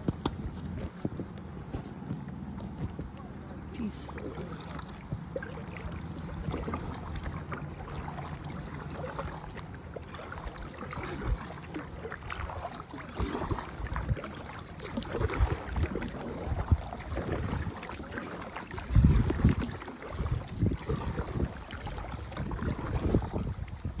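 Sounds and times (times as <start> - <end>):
paddle splashing in water: 0.0 - 24.0.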